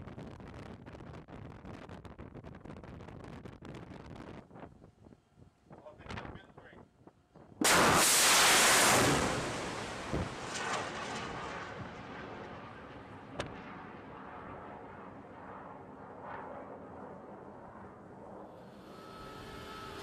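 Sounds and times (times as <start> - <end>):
rocket motor roar: 7.6 - 13.6, 18.5 - 20.0.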